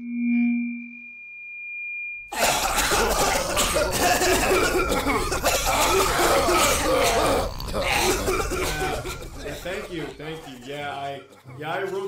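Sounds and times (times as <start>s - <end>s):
electronic tone effect: 0.0s - 2.3s
crowd coughing: 2.3s - 12.0s.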